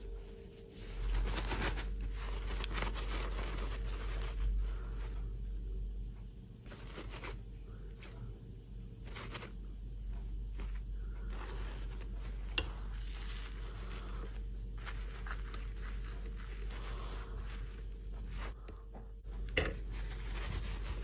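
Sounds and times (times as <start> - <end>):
steady low hum: 0.0 - 21.0
plastic dolls rustling and scraping: 0.4 - 5.2, 6.7 - 7.4, 9.0 - 9.6, 10.5 - 21.0.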